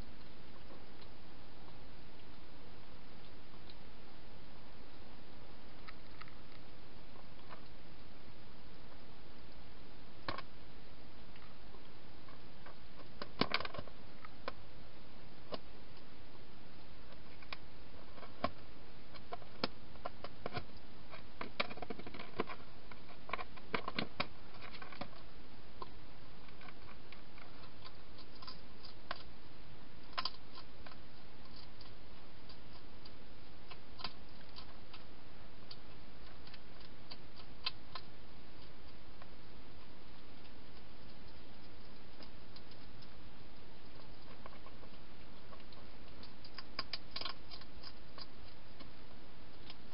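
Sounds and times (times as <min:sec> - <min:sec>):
hedgehog feeding crunches: 0:11.3 - 0:14.6, 0:15.4 - 0:49.9.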